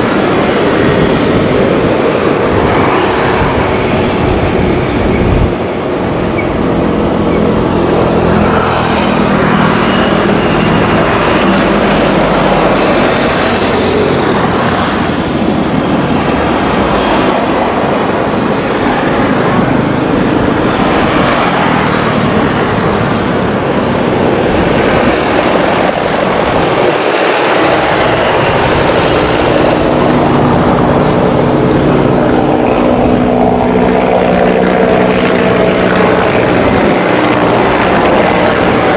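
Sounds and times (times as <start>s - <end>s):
helicopter engine and rotor: 0.0s - 38.9s.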